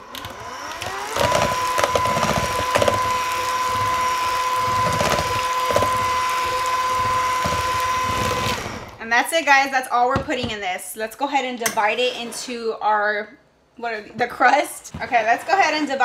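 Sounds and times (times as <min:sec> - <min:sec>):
hand mixer whining: 0:00.0 - 0:09.0.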